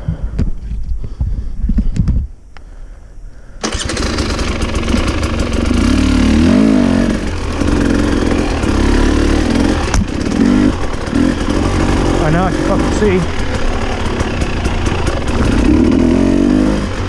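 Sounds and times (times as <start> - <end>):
dirt bike engine starting and revving: 3.6 - 17.0.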